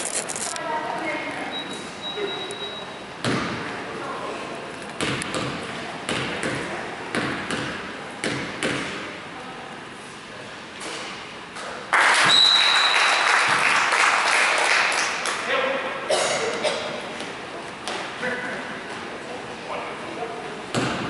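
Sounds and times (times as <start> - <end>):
crowd cheering and clapping: 11.9 - 15.4
whistle blast: 12.3 - 13.3.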